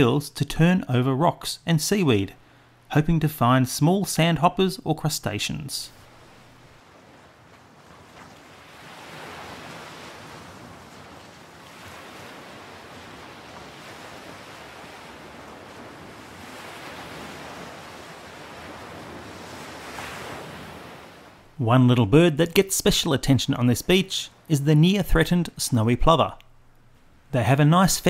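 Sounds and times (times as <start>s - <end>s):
waves breaking on beach: 5.9s - 21.6s.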